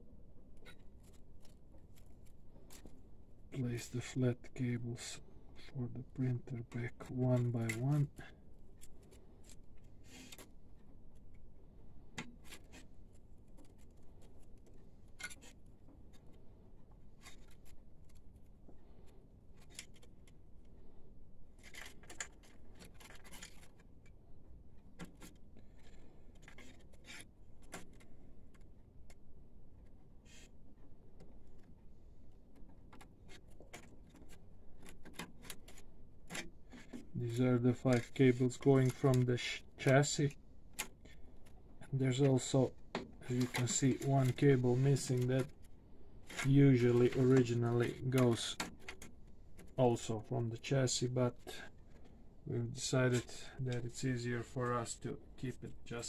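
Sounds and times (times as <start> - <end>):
hands rubbing cables: 0.5 - 4.5, 5.2 - 11.4, 12.0 - 52.2
small plastic clicks: 8.8 - 11.4, 12.1 - 37.1.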